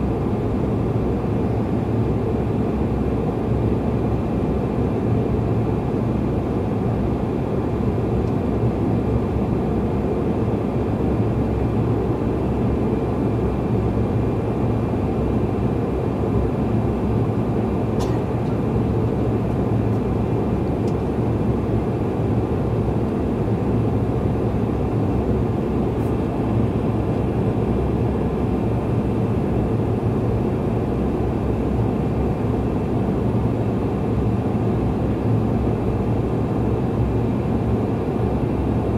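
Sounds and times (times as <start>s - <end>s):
jet engines droning: 0.0s - 38.9s.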